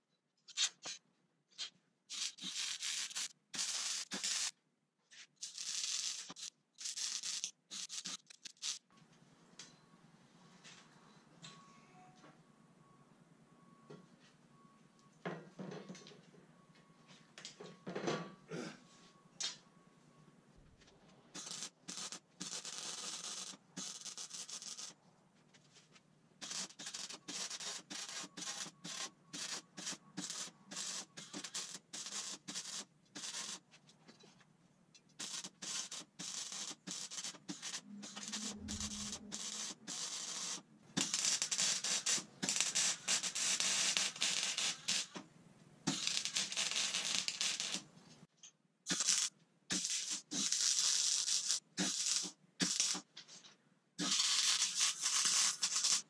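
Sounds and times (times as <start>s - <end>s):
arc welding crackling hiss: 2.1s - 4.5s, 5.4s - 8.9s, 21.4s - 25.0s, 26.4s - 33.6s, 35.2s - 45.2s, 45.9s - 47.9s, 48.9s - 53.0s, 54.0s - 56.0s.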